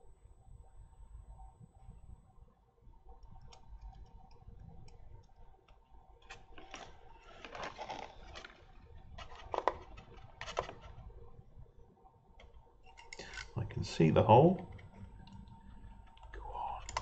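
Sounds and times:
fingers scraping and rustling: 6.2s - 11.0s
plastic model clicks: 16.1s - 17.0s.

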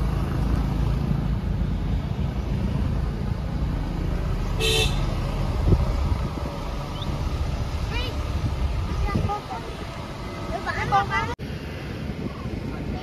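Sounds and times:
vehicle horn toot: 4.6s - 5.1s.

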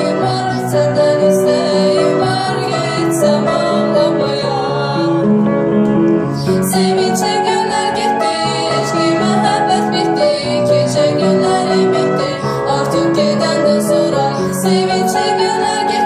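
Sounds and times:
woman singing: 0.0s - 5.2s, 6.4s - 16.0s
upright piano melody: 0.0s - 16.0s.

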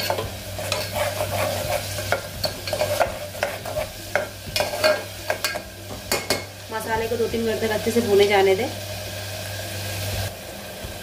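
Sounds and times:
metal spoon scraping pot: 0.0s - 5.6s
paste sizzling in hot oil: 0.0s - 11.0s.

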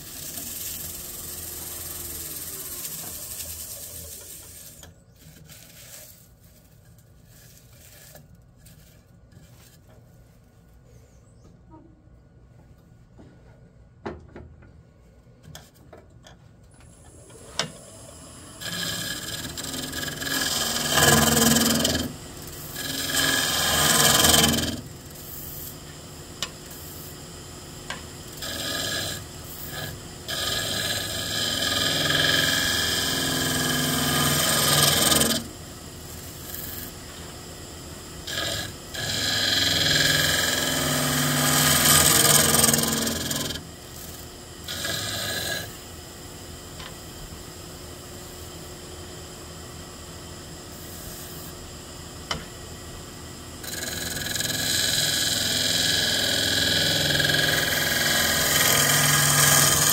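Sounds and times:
lathe tool cutting wood: 0.0s - 4.8s, 17.3s - 25.8s, 27.9s - 37.0s, 38.1s - 45.8s, 53.6s - 59.9s.

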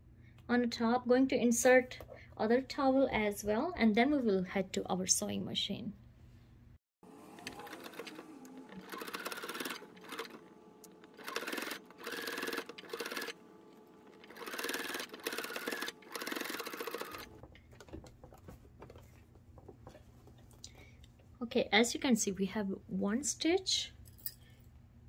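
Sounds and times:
sewing machine stitching: 7.0s - 17.5s.

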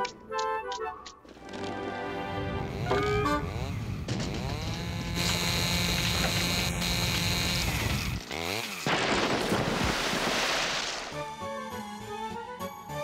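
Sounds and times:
chainsaw motor drone: 2.6s - 9.0s.

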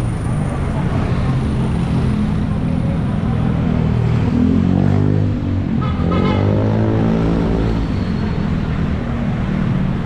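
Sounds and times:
short horn: 5.8s - 6.6s.

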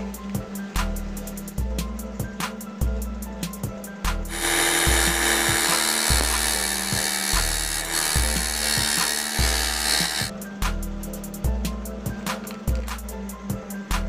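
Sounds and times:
background music with steady beat: 0.0s - 14.0s
belt sander sanding wood: 4.3s - 10.3s.

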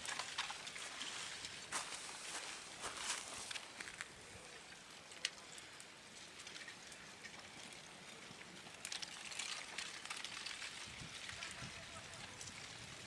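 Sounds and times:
lava crust crackling and clinking: 0.0s - 13.0s.

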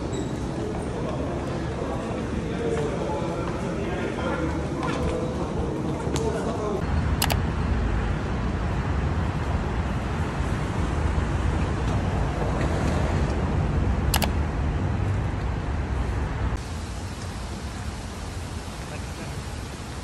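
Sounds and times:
road traffic rumble and hiss: 0.0s - 20.0s
sharp clicks: 7.2s - 7.4s, 14.1s - 14.4s.

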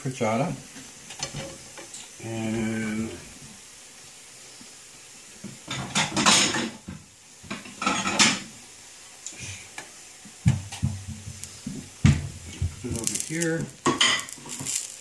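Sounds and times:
plates clattering and scraping: 5.7s - 6.9s, 7.5s - 8.5s, 13.8s - 15.0s.

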